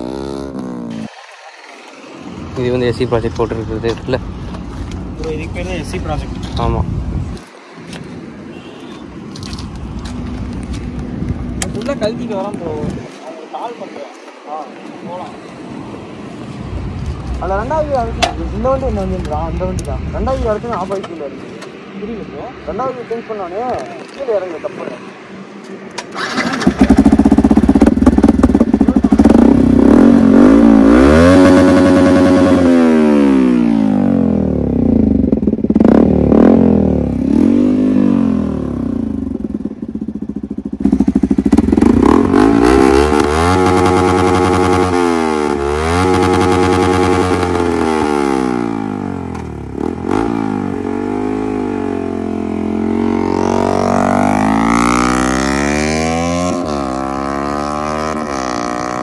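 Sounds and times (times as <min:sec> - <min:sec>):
motorcycle engine revving: 0:00.0 - 0:01.1, 0:26.1 - 0:59.0.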